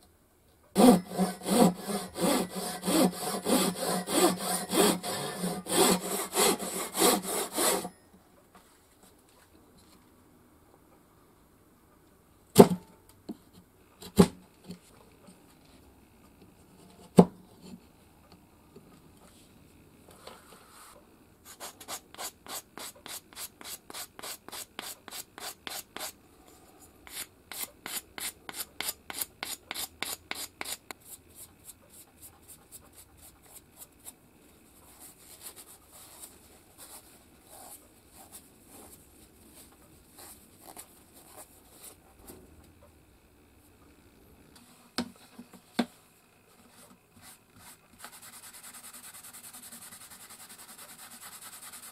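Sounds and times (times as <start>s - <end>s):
hissy polishing strokes: 0.8s - 7.9s
rasping abrasive strokes: 0.8s - 7.9s.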